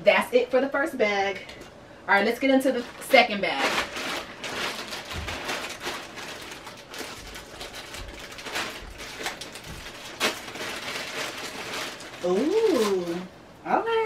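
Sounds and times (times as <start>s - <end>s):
plastic bag rustling and crinkling: 2.6s - 13.3s
sharp plastic crackle: 2.7s - 13.3s.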